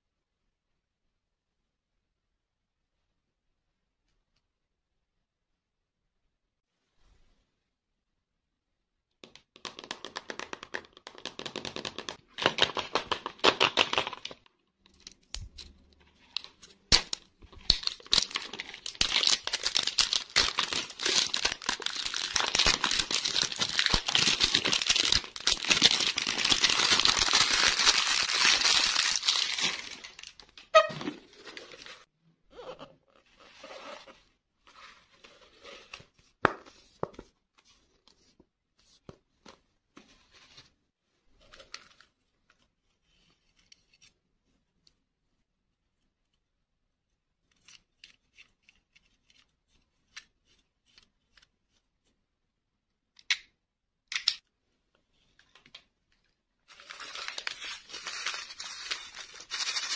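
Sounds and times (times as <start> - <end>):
plastic wrapper tearing and crinkling: 16.4 - 30.6, 56.7 - 59.9.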